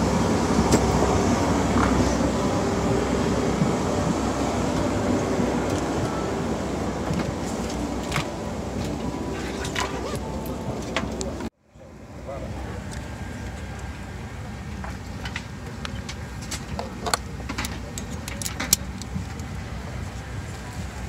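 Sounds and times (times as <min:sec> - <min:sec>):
cabin air system hum: 0:00.0 - 0:16.4.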